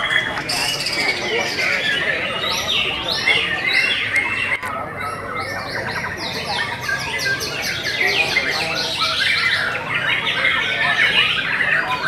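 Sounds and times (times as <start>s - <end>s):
bird singing whistles and chatter: 0.0s - 12.0s.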